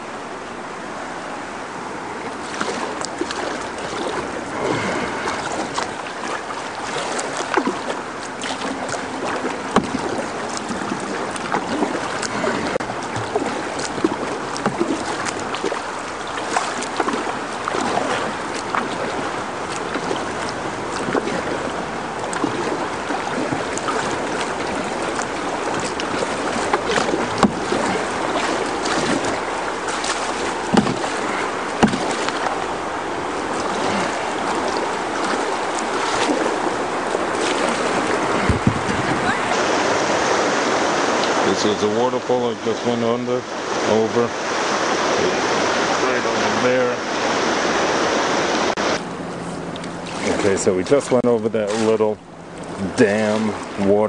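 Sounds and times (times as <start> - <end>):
river water rushing and splashing: 0.0 - 54.0
knocks against kayak hull: 9.6 - 10.3, 25.7 - 32.6, 37.3 - 39.2.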